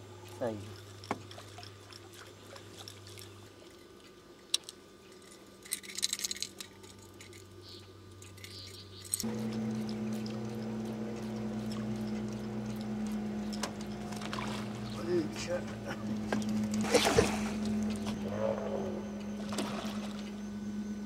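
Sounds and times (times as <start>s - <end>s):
outboard motor running: 9.2s - 21.0s.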